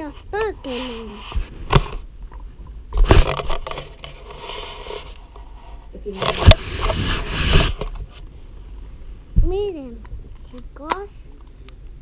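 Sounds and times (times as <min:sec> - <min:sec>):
microphone handling scraping: 0:00.0 - 0:02.1, 0:03.0 - 0:08.3.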